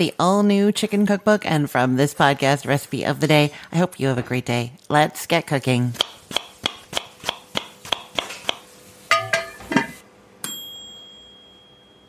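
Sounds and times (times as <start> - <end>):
bell ding: 10.4 - 12.0.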